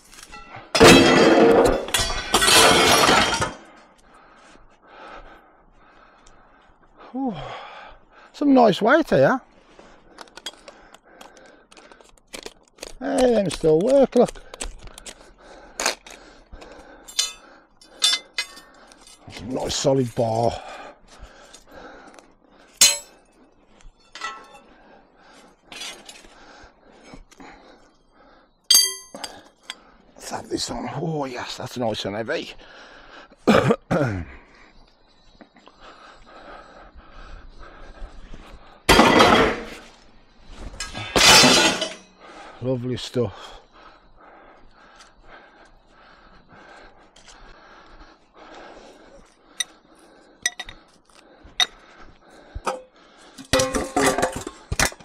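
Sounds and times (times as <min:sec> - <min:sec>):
scrap metal crashing and clanging: 0:00.3 - 0:03.7, 0:38.9 - 0:39.8, 0:40.8 - 0:42.1, 0:53.4 - 0:54.9.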